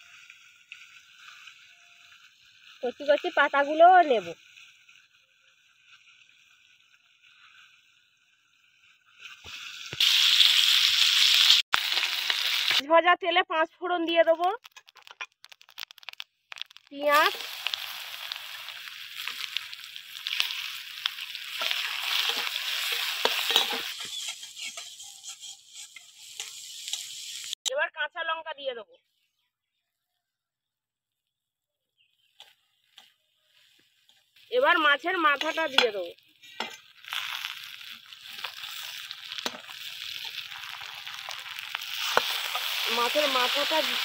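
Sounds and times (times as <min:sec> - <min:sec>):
onion sizzling in hot oil: 0:00.0 - 0:13.0, 0:14.2 - 0:27.7, 0:32.0 - 0:44.0
metal spatula scraping a pan: 0:17.4 - 0:27.6, 0:35.3 - 0:43.6.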